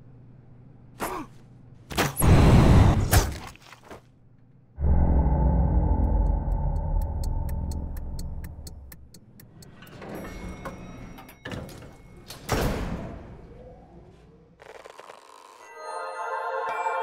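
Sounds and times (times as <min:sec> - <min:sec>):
lift mechanical rumble with ticking: 0:04.8 - 0:12.2
lift doors sliding: 0:09.6 - 0:13.4.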